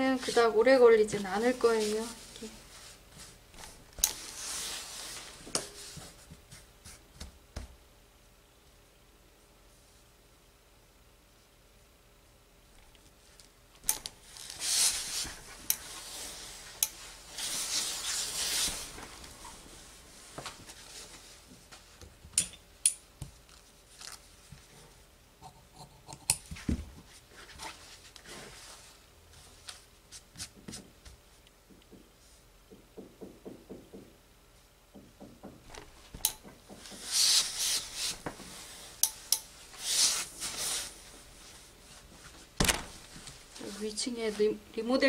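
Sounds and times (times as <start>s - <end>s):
fabric rustling: 0.0s - 7.2s, 13.2s - 22.0s, 36.8s - 44.7s.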